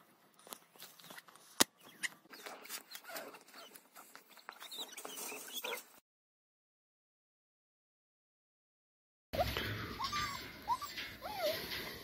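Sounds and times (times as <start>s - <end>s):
puppies whimpering: 9.4s - 11.8s.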